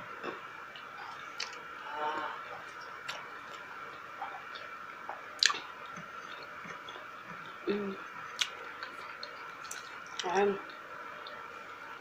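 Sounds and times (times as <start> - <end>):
person chewing food: 1.1 - 1.6, 5.4 - 7.5.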